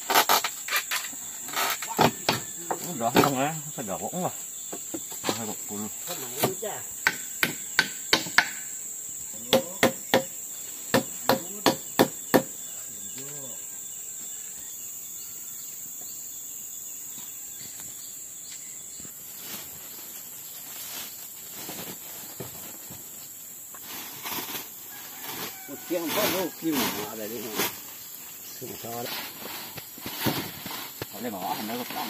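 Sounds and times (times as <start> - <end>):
insects droning: 0.0 - 32.0
sharp knocks: 6.4 - 8.6, 9.4 - 12.6.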